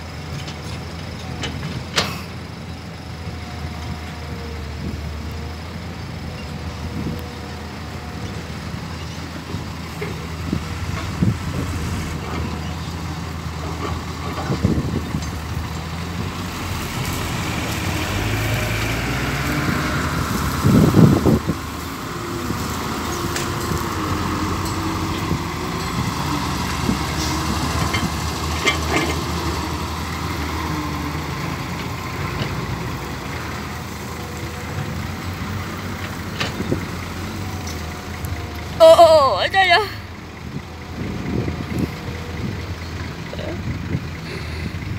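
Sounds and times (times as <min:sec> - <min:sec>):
dump truck diesel engine: 0:00.0 - 0:44.9.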